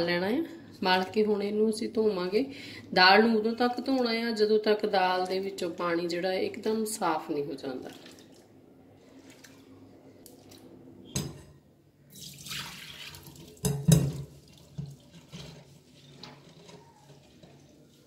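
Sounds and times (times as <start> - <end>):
water splashing into steel sink: 7.8 - 8.5, 12.1 - 18.0
dish knocking against sink: 13.6 - 14.3.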